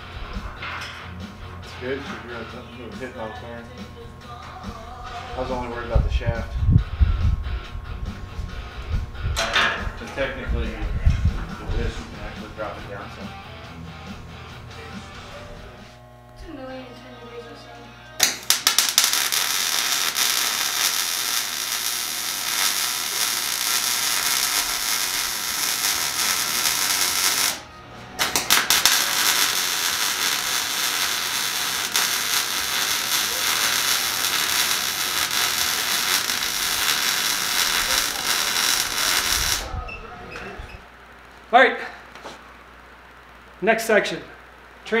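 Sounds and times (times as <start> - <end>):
welder crackling sizzle: 14.0 - 16.9, 18.1 - 39.8.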